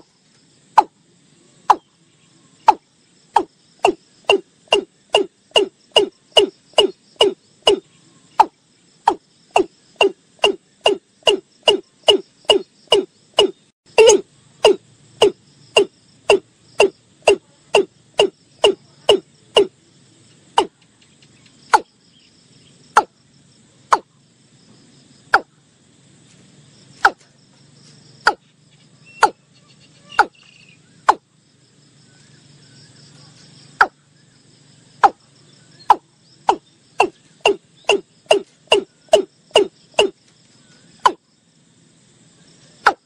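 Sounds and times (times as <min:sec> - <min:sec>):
bird calling sharp notes: 0:03.4 - 0:19.7, 0:29.0 - 0:31.2, 0:35.8 - 0:40.2.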